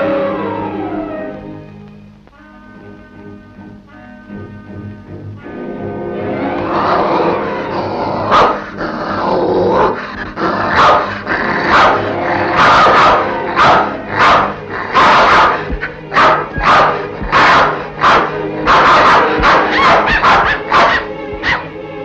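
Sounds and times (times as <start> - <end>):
orchestral film music: 0.0 - 22.0
dog barking: 8.3 - 8.8, 10.7 - 21.7.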